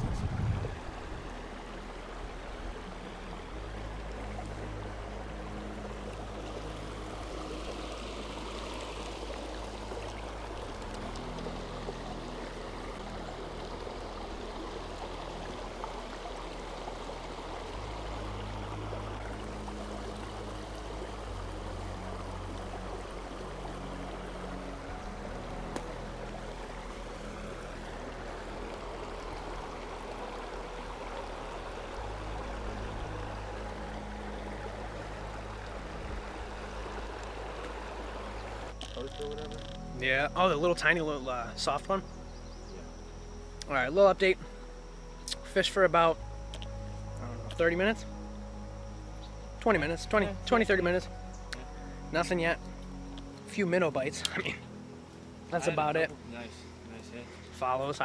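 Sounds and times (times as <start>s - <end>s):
creek water flowing over rocks: 0.0s - 58.0s.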